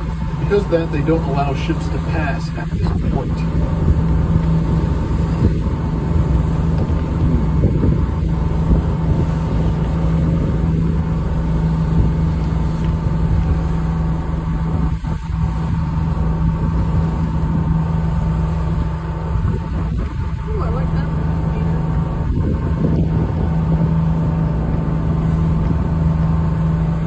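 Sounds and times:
boat engine running: 0.0s - 27.0s.

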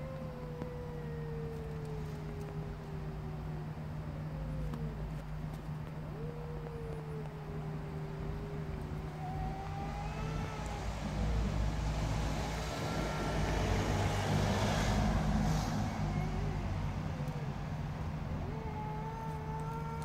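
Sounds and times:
vehicle engine rumble: 1.3s - 20.0s.

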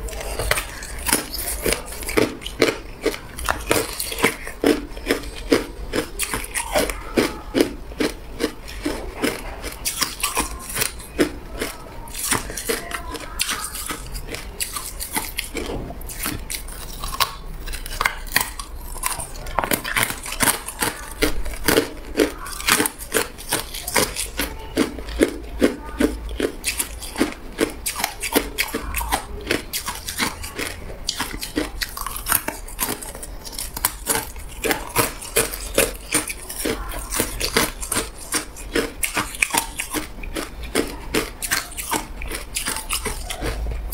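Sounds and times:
ice cubes crunching while chewed: 0.0s - 43.9s.

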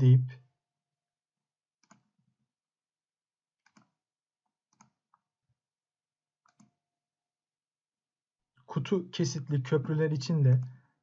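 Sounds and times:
computer mouse clicks: 1.8s - 2.2s, 3.6s - 4.0s, 4.7s - 5.2s, 6.4s - 6.8s.

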